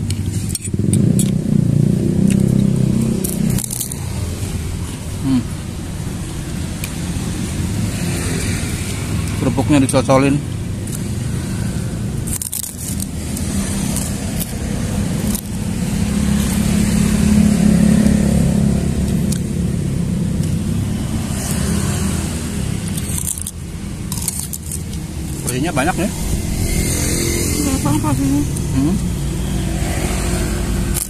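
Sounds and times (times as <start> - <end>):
vehicle engine running: 8.7 - 31.0.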